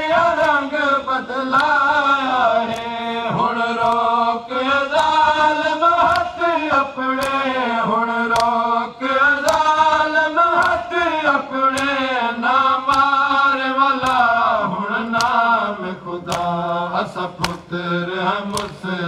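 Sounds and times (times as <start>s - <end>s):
men chanting a mourning lament: 0.0s - 19.0s
hands slapping chests: 0.1s - 0.8s, 1.5s - 4.3s, 4.9s - 7.6s, 8.2s - 8.7s, 9.3s - 12.1s, 12.8s - 14.4s, 15.0s - 15.5s, 16.2s - 17.7s, 18.4s - 18.9s.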